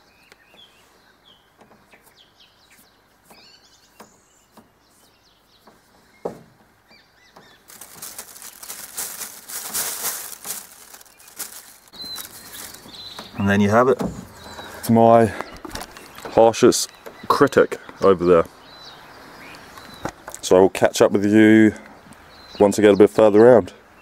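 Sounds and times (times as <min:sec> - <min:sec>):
birds chirping: 0:00.0 - 0:24.0
crackling rustle of plastic bag: 0:07.6 - 0:13.2.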